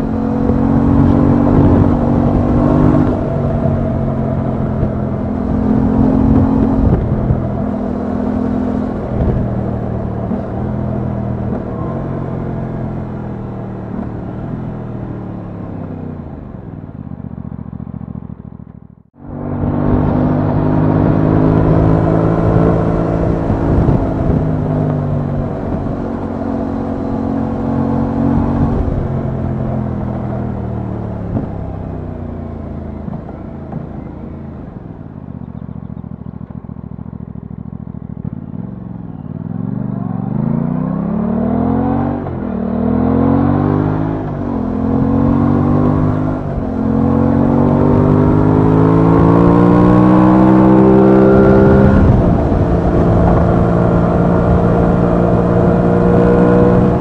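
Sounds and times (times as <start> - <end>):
wind rush: 0.0 - 13.4, 19.2 - 31.8, 43.5 - 57.0.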